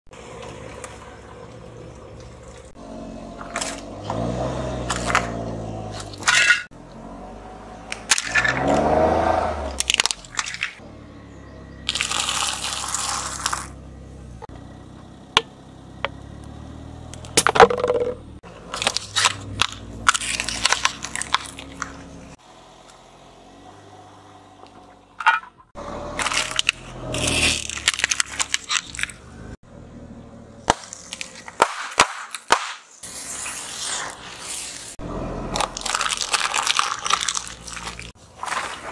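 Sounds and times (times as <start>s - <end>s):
car engine running low: 0.1s - 31.6s, 34.9s - 38.9s
objects crushed under car tyre: 7.9s - 10.8s, 11.9s - 13.8s, 17.4s - 22.0s, 26.1s - 29.2s, 35.5s - 38.9s.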